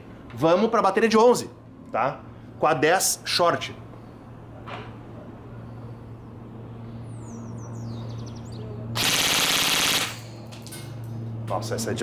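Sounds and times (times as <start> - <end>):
airsoft rifle full-auto burst: 9.0 - 10.3.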